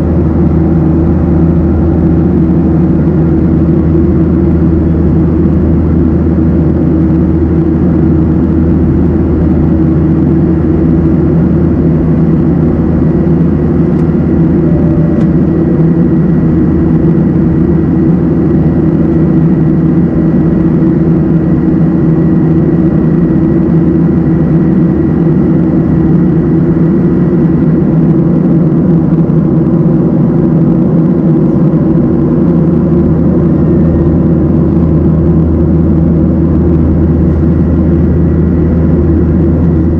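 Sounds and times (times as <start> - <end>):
faint thin whine: 0.0 - 26.4
jet engine drone: 0.0 - 39.9.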